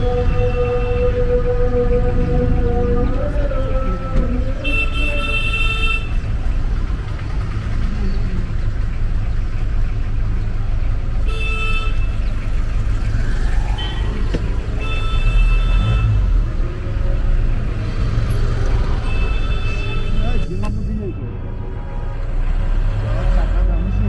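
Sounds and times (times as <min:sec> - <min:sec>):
engine and road rumble: 0:00.0 - 0:24.0
vehicle horns honking: 0:04.6 - 0:06.3, 0:11.2 - 0:12.2, 0:13.8 - 0:16.5, 0:19.0 - 0:21.3.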